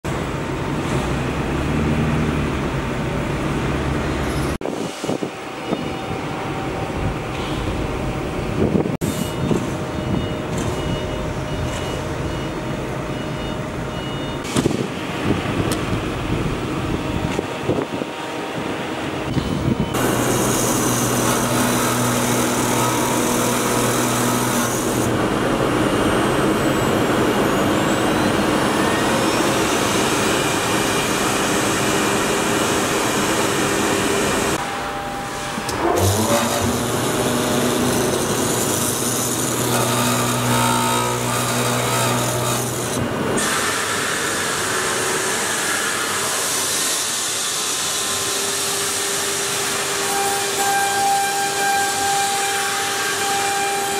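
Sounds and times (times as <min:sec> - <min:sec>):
cutting machine hum and hiss: 0:00.1 - 0:53.9
low held tones: 0:34.5 - 0:37.8.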